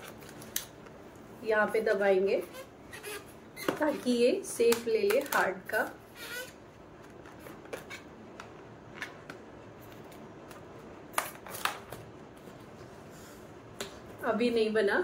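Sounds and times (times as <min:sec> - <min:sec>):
balloon rubbing and squeaking: 0:02.4 - 0:04.2, 0:06.1 - 0:06.6.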